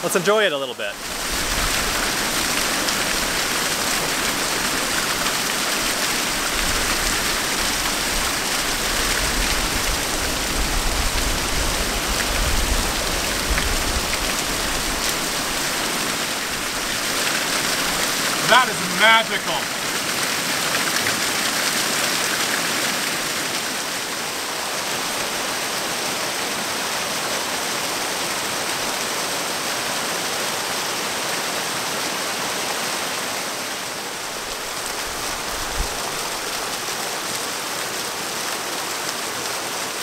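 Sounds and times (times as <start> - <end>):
waterfall splashing into pool: 0.1 - 40.0.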